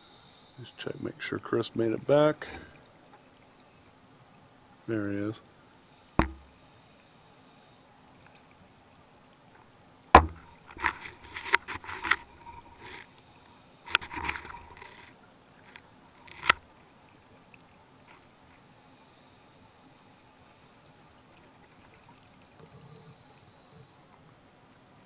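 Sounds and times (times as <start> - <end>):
knocks of gear handling: 6.2 - 6.5, 10.2 - 11.0.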